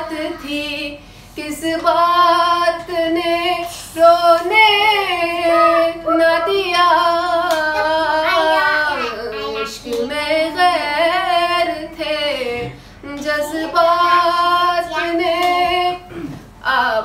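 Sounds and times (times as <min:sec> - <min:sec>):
woman singing slow song: 0:00.0 - 0:17.0.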